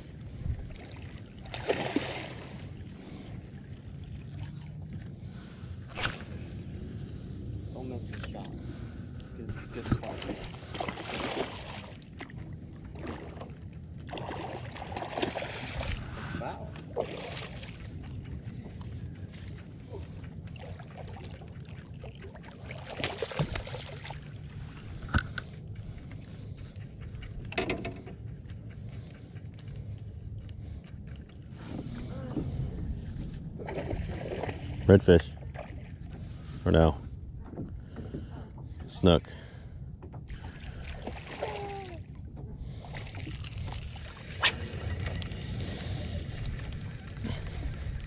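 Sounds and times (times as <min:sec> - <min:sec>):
water sloshing around a boat: 0:00.0 - 0:48.0
low rumble: 0:02.3 - 0:48.0
fish thrashing and splashing: 0:10.0 - 0:12.2, 0:12.9 - 0:16.2, 0:20.5 - 0:24.3, 0:42.9 - 0:45.3.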